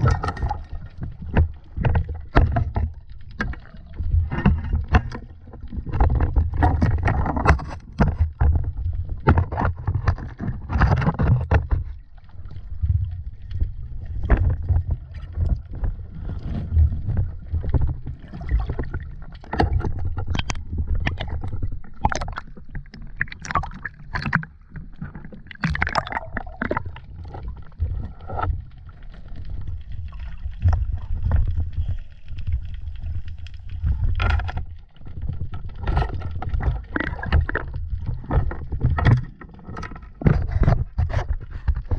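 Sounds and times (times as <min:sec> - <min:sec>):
knocks underwater: 0:00.0 - 0:32.0, 0:33.7 - 0:41.9
bubbling: 0:00.0 - 0:41.9
water sloshing and splashing: 0:00.0 - 0:41.9.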